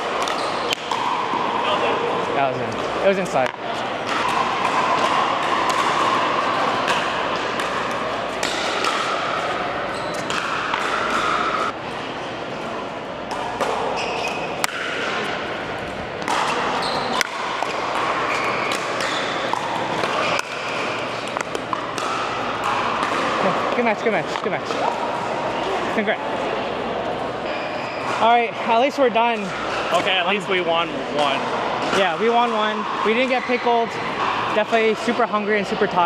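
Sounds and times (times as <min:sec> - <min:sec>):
paddles striking balls: 0:00.0 - 0:11.8, 0:13.2 - 0:26.1
murmur of voices: 0:00.0 - 0:36.0.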